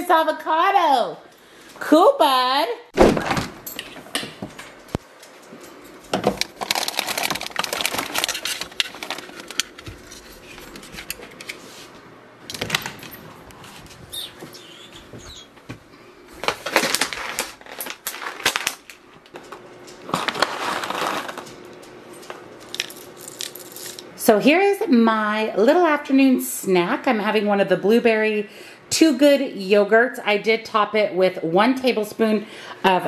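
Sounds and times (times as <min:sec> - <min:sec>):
plastic bag crinkling: 0:06.2 - 0:11.3, 0:16.4 - 0:21.7, 0:22.6 - 0:24.1.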